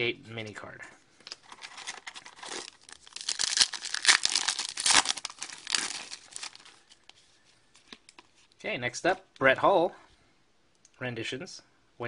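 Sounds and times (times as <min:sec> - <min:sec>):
wrapper tearing and crinkling: 0:01.3 - 0:07.1.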